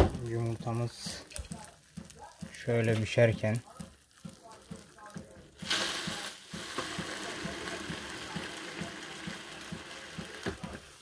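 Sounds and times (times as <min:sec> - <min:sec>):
egg sizzling in oil: 0:00.0 - 0:11.0.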